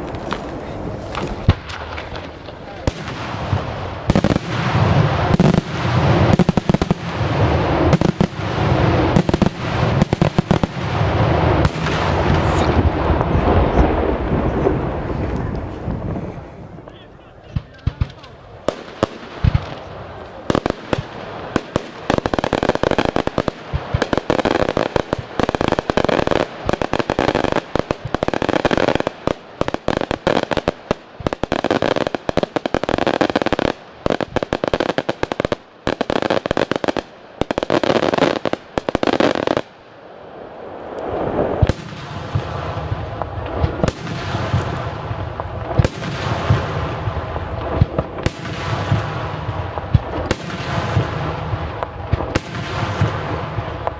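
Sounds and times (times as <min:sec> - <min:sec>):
aerial firework shells bursting: 0:00.0 - 0:15.1, 0:17.7 - 0:39.7
firecrackers crackling: 0:00.0 - 0:53.9.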